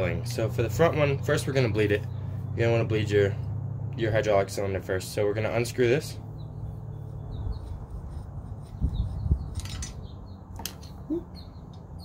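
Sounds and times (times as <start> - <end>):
metallic clicks and scraping: 9.4 - 11.0.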